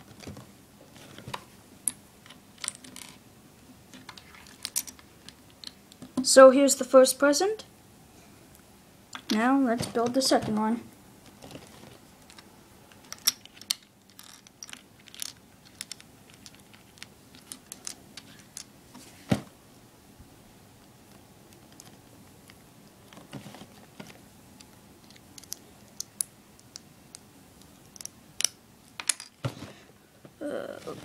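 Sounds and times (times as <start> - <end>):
plastic bricks clicking on wood: 25.0 - 26.9.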